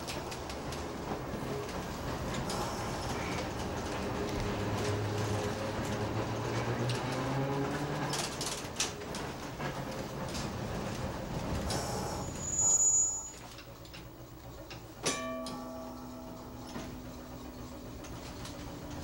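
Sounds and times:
clicking and rattling on track: 0.0 - 19.0
streetcar motors whining: 0.0 - 19.0
high-pitched squeal: 12.1 - 13.5
metal clang: 15.0 - 17.1
ringing tone: 15.0 - 18.1.

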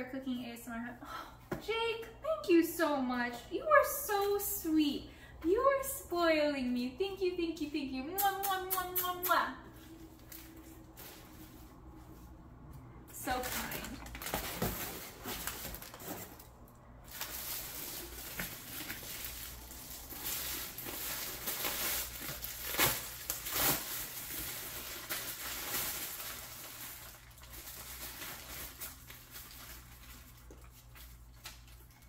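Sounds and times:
gift wrapping rustling: 13.2 - 31.8
wrapping paper crackles: 13.2 - 32.0.

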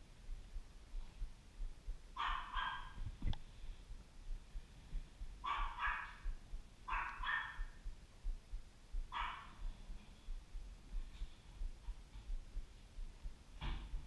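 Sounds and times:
dog barking: 2.2 - 3.0, 5.4 - 7.8, 9.1 - 9.7.

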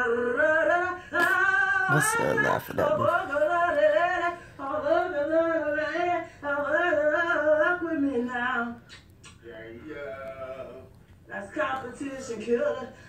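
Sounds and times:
woman singing unaccompanied: 0.0 - 8.9.

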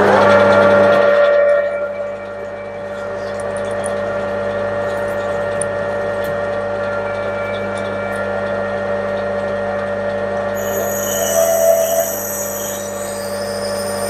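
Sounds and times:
metal lathe motor hum: 0.0 - 14.0.

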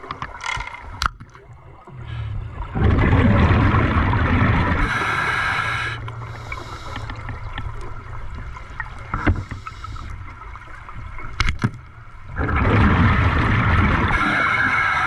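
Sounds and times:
loud bubbling rush: 2.7 - 5.7, 12.3 - 15.0.

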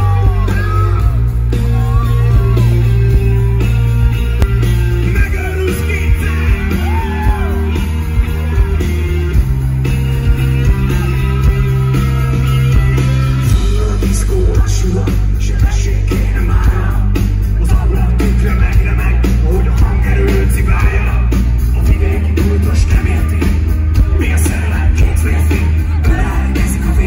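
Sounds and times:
man singing lead vocals: 0.0 - 2.7, 4.9 - 7.8, 13.4 - 27.0
live rock band: 0.0 - 27.0.

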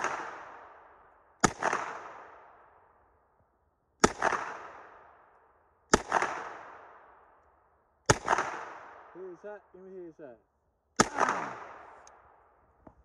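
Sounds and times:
gunshots with echo: 0.0 - 2.5, 4.0 - 5.1, 5.9 - 7.0, 8.1 - 9.4, 11.0 - 12.4.

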